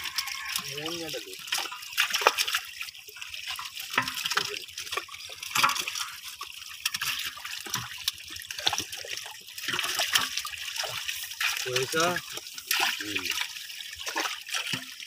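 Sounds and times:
fish flapping and thrashing: 0.0 - 0.7
water splashing and dripping: 0.0 - 15.0.

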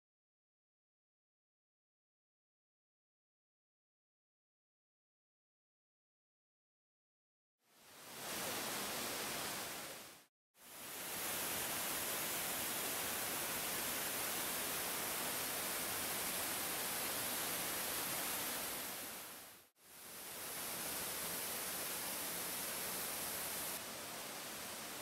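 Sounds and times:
waterfall pouring into pool: 10.7 - 25.0.

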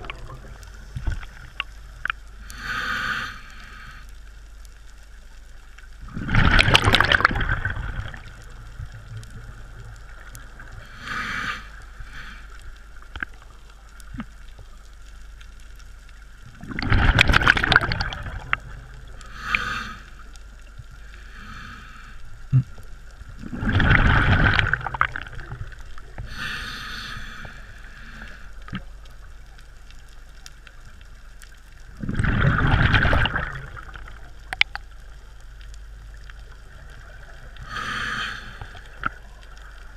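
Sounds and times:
regulator bubbling exhalations: 6.1 - 8.3, 16.6 - 18.7, 23.4 - 27.5, 31.9 - 34.7.

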